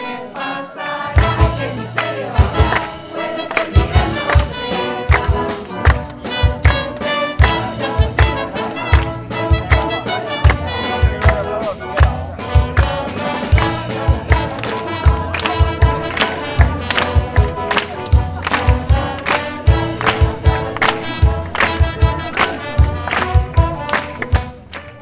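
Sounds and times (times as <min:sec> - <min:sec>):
wind band playing: 0:00.0 - 0:25.0.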